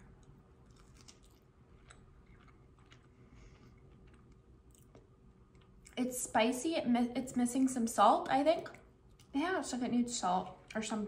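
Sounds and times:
person chewing: 0.0s - 6.0s.

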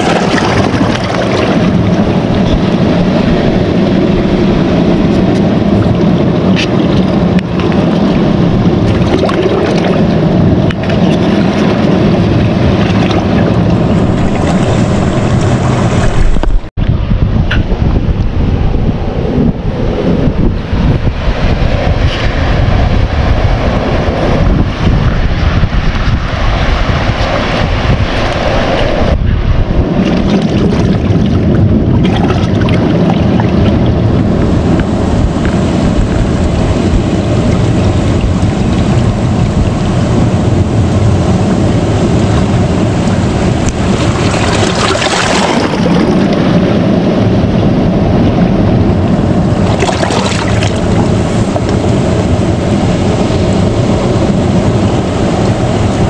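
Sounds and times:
sea water lapping on rocks: 0.0s - 2.8s, 43.4s - 46.5s, 49.6s - 52.0s
wind rumbling on microphone: 0.0s - 56.0s.

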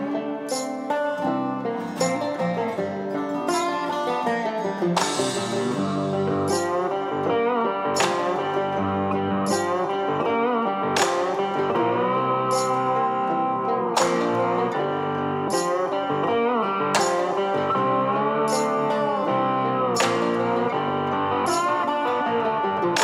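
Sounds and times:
blues guitar music: 0.0s - 23.0s
crisp percussion hit: 5.0s - 7.0s.

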